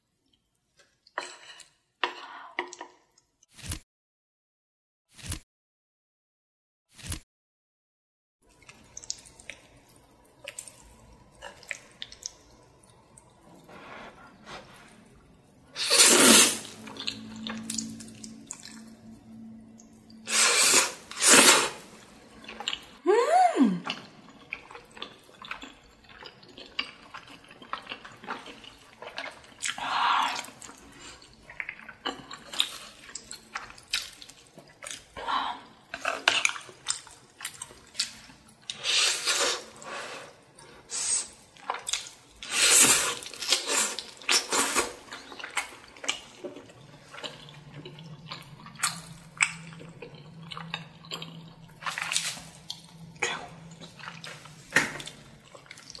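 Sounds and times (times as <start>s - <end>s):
chewing: 8.6s - 15.6s, 21.8s - 23.0s, 23.8s - 35.2s, 35.8s - 40.9s, 41.5s - 56.0s
loud slurps: 15.8s - 18.8s, 20.3s - 22.0s, 38.7s - 41.4s, 42.4s - 45.1s
person humming: 23.0s - 23.9s.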